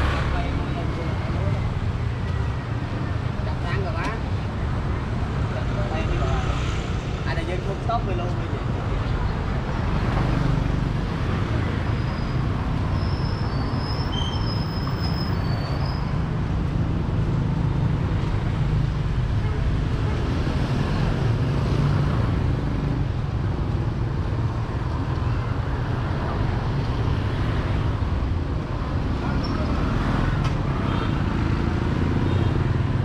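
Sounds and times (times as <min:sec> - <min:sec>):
street traffic passing: 0:00.0 - 0:33.0.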